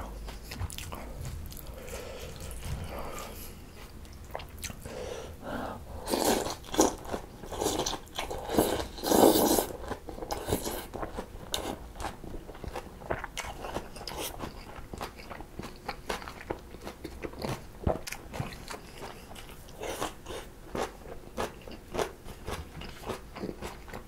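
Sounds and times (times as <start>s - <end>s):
wet chewing and crunching: 0.0s - 4.8s, 6.1s - 24.0s
slurping noodles and broth: 4.9s - 10.9s.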